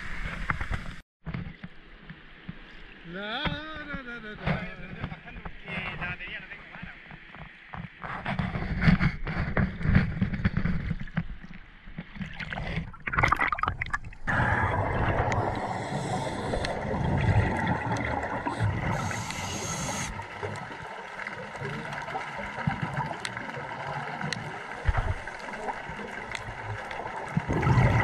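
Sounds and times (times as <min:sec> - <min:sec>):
water sloshing and splashing: 0:07.0 - 0:28.0
muffled underwater rush: 0:09.6 - 0:28.0
regulator bubbling: 0:12.3 - 0:28.0.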